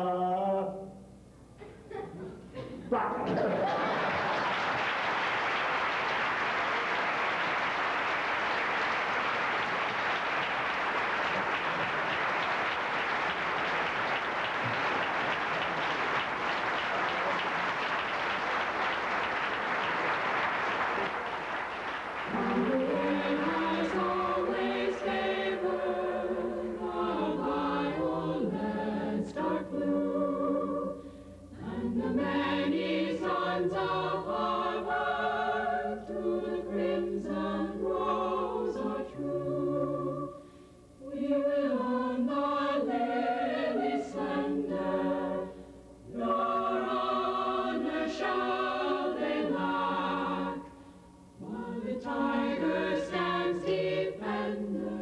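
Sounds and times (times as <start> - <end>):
choir singing in harmony: 18.0 - 55.0.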